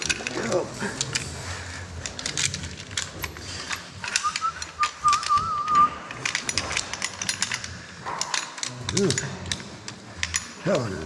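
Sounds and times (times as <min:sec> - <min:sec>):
metal gear clinking: 0:00.0 - 0:11.0
wavering whistle: 0:04.2 - 0:06.0.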